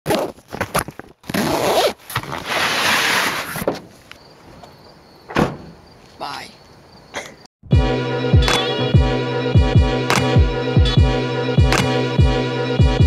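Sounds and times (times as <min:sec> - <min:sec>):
rough rubbing and scraping: 0:00.1 - 0:04.0.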